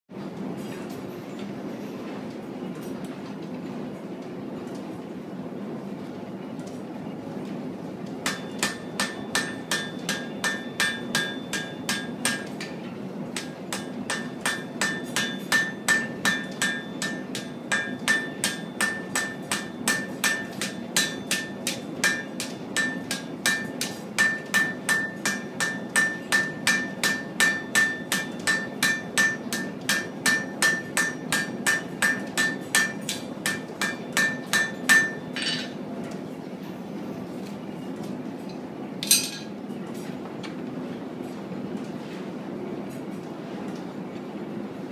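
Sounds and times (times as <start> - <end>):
hammer ringing on anvil: 8.2 - 12.7, 13.4 - 35.8.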